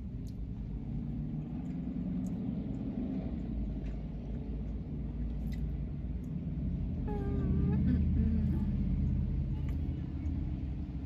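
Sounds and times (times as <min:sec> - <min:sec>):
car engine idling: 0:00.0 - 0:11.0
chewing clicks: 0:01.4 - 0:06.4.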